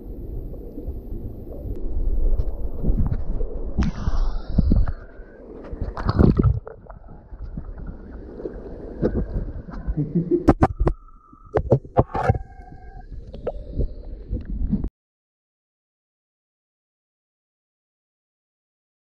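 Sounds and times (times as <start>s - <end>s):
water splashing: 0.3s - 13.8s.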